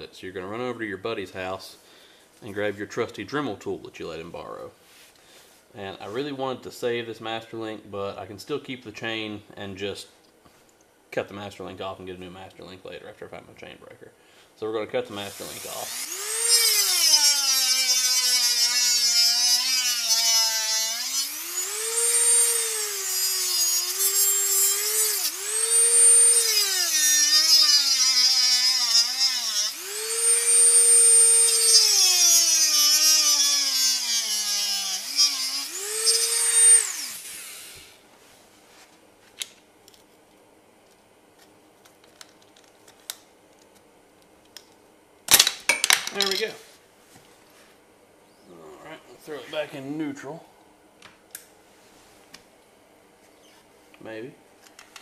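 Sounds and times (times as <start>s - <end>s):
rotary tool cutting metal: 15.3s - 37.7s.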